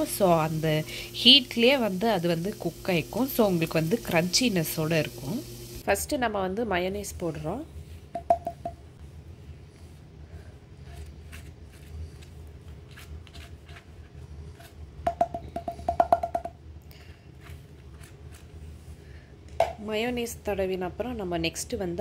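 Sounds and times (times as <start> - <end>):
steady low hum: 0.0 - 15.9.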